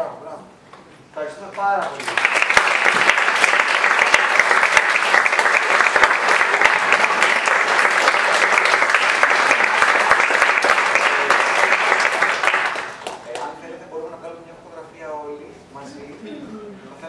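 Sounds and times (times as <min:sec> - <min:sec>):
applause: 0:01.5 - 0:13.5.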